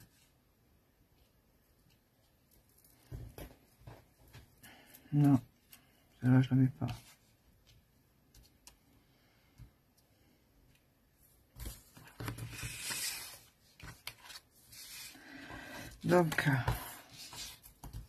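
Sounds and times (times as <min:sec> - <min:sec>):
cardstock rustling: 0:11.5 - 0:15.2.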